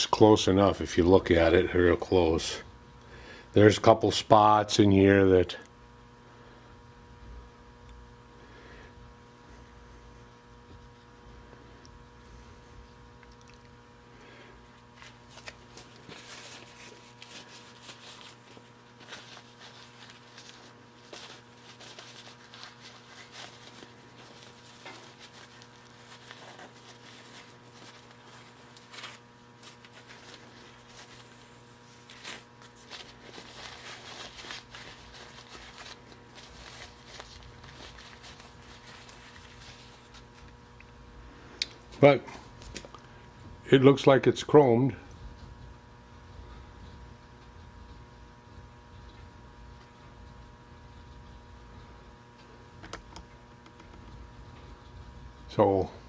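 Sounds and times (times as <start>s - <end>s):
steady electrical hum: 0.0s - 56.0s
cloth rag rustling: 14.7s - 40.7s.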